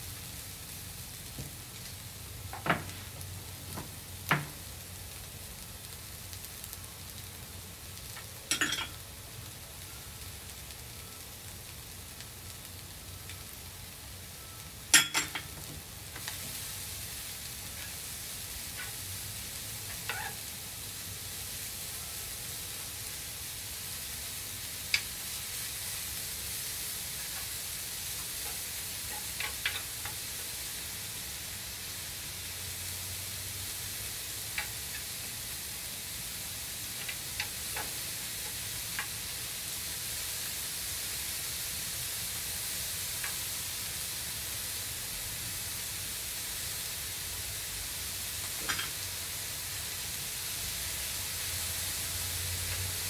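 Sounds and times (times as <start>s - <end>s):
food sizzling in a griddle pan: 0.0s - 53.0s
wooden tongs clacking on pan: 8.2s - 9.0s, 28.2s - 30.2s, 37.0s - 39.2s.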